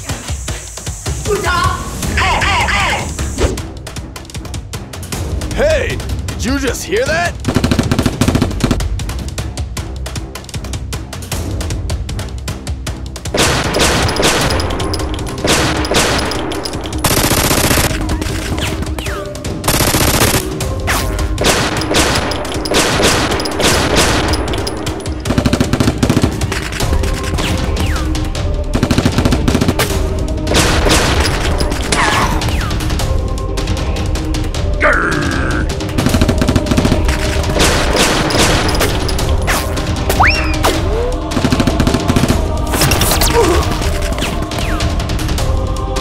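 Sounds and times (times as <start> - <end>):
background music: 0.0 - 46.0
gunfire shots and bursts: 7.4 - 8.9, 13.3 - 32.8, 35.9 - 45.0.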